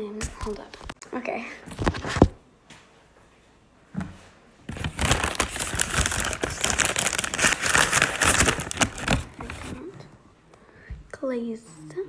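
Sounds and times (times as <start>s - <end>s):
paper packaging crinkling: 4.7s - 9.9s.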